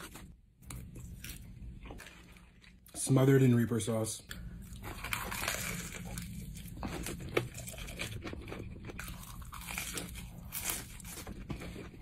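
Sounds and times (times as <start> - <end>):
crunchy chewing: 4.3 - 12.0.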